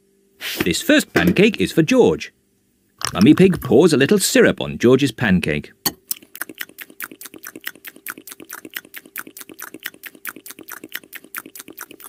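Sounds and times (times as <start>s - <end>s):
faint steady hum: 0.0s - 12.0s
cartoon munching clicks: 6.0s - 12.0s.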